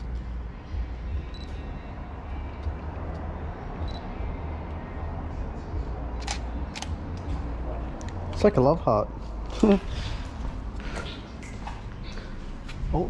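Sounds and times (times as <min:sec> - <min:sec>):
low rumble and hiss: 0:00.0 - 0:13.0
camera shutter clicks: 0:06.2 - 0:06.9.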